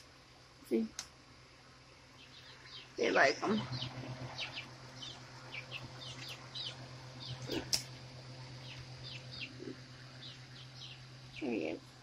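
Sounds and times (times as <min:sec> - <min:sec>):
chicks peeping: 0:02.2 - 0:11.8.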